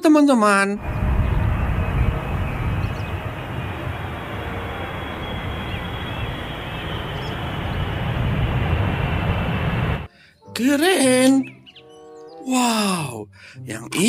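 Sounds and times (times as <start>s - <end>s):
faint high whine: 0.8s - 10.1s
jet engine rumble: 0.8s - 10.1s
rush of air: 0.8s - 10.1s.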